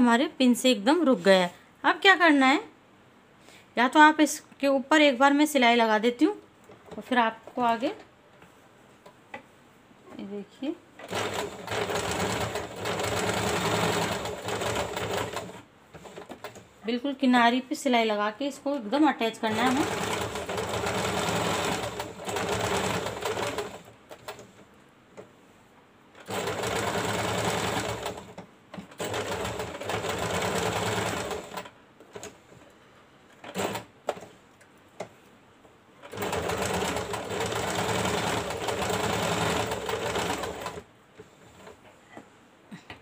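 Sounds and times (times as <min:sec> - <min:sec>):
electric sewing machine stitching: 0:11.0 - 0:16.6, 0:19.4 - 0:24.4, 0:26.2 - 0:32.3, 0:36.0 - 0:40.9.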